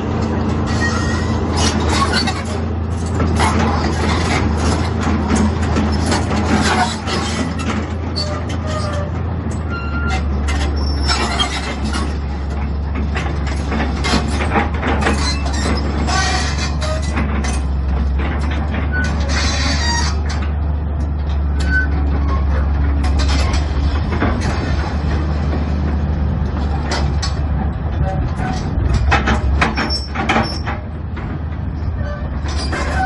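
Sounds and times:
excavator diesel engine running: 0.0 - 33.0
high squeaks from linkage: 0.7 - 2.6, 6.7 - 12.1, 15.0 - 17.6, 18.9 - 20.4, 21.5 - 23.7, 32.0 - 33.0.

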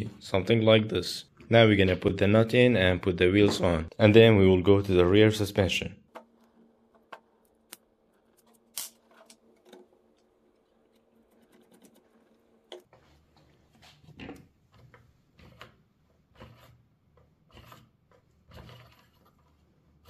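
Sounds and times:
soft rubbing and scraping: 11.1 - 19.8.

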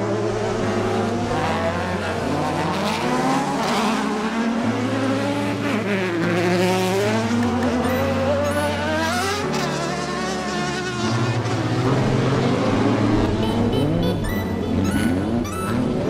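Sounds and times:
buggy engines revving: 0.0 - 16.0.

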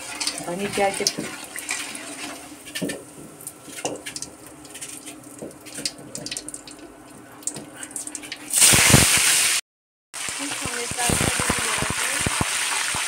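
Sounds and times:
hot oil crackling and popping: 0.0 - 9.6, 10.2 - 13.0
fish sizzling in oil: 8.2 - 9.6, 10.2 - 13.0.

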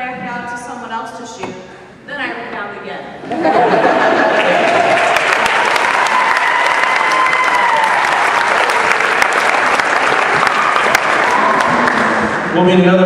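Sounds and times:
crowd clapping and cheering: 3.7 - 12.7
person holding a long cheer: 4.3 - 12.4.

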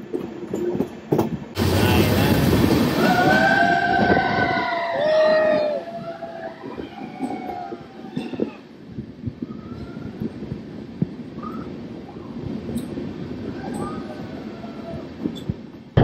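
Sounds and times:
train running on track: 0.0 - 16.0.

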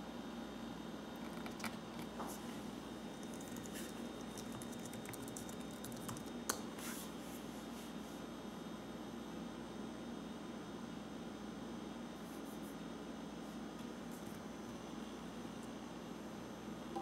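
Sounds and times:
laptop keyboard typing: 3.2 - 6.4.

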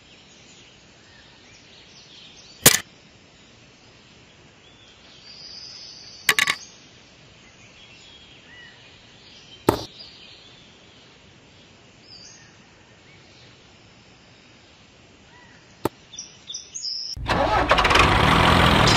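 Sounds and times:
faint bird chirps: 0.0 - 17.2
craft pieces clicking and knocking: 6.3 - 6.6.

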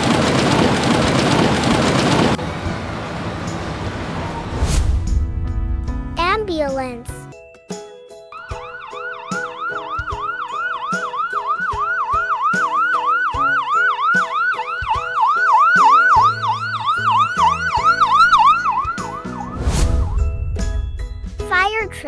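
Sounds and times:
emergency siren yelping: 8.3 - 19.6.

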